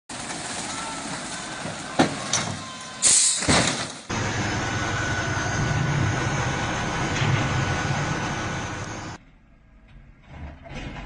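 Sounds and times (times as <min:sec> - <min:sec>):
loud burst of hiss: 0:03.0 - 0:03.5
low engine rumble: 0:04.1 - 0:10.6.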